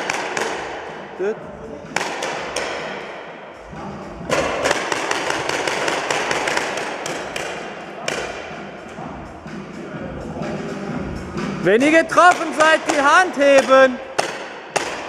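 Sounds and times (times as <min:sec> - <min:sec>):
paintball markers firing: 0:00.0 - 0:00.7, 0:04.3 - 0:08.3.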